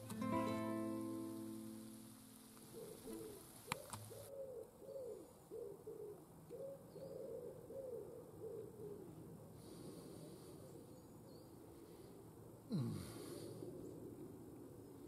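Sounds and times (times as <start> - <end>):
pigeon cooing: 2.5 - 11.0.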